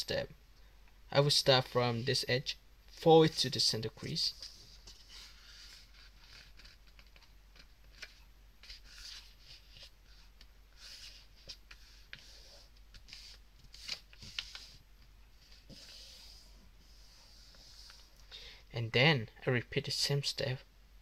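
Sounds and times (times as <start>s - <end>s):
paper rustling and sliding: 3.2s - 14.8s, 15.4s - 18.1s.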